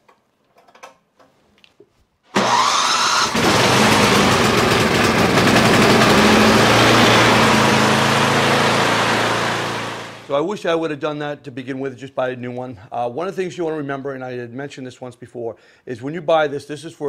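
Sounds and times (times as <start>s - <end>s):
electric starter cranking whine: 2.3s - 10.3s
snowblower engine running: 2.4s - 10.3s.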